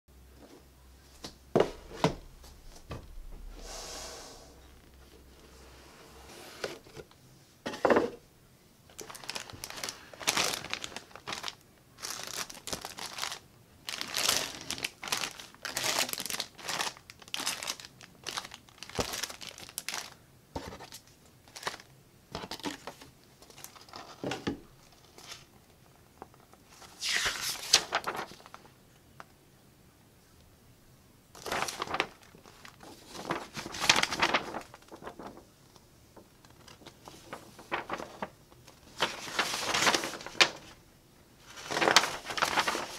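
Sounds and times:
plastic bags crinkling: 8.9 - 20.2, 20.8 - 25.6, 26.2 - 28.7, 31.4 - 35.6, 36.2 - 40.8, 41.4 - 42.9
paper sheets rustling: 9.0 - 21.8, 26.2 - 28.7, 31.4 - 35.6, 36.2 - 40.8, 41.4 - 42.9.

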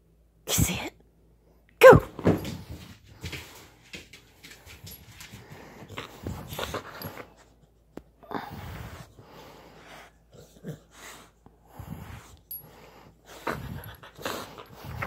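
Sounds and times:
dog breathing hard: 8.4 - 15.0.

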